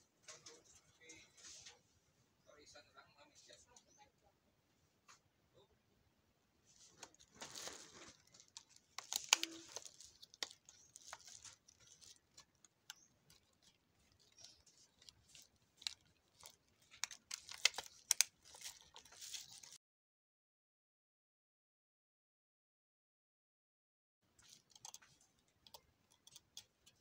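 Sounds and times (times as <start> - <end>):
plastic packaging crinkling and tearing: 6.8 - 19.8.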